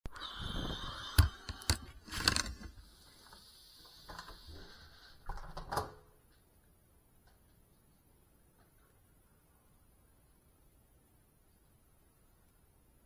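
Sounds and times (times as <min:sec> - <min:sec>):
faint high hiss: 0:02.7 - 0:13.0.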